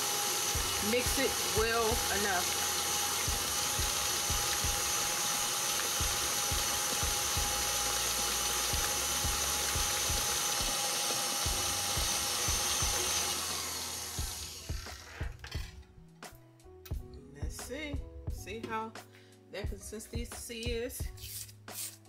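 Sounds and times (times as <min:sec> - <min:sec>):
stand mixer whining: 0:00.0 - 0:15.4.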